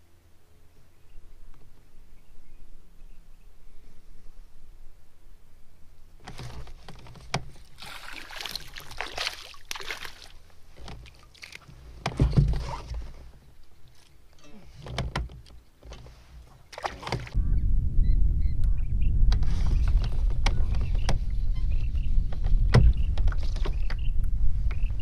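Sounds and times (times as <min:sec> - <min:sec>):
water splashing against kayak hull: 0:06.2 - 0:14.2, 0:14.9 - 0:17.4
loud low rumble: 0:17.4 - 0:23.0.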